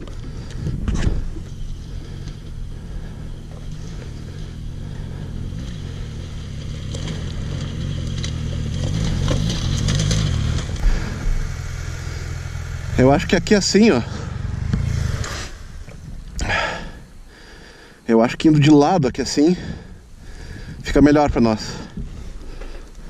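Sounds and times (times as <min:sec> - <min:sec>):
motorcycle engine running: 0:00.0 - 0:17.2.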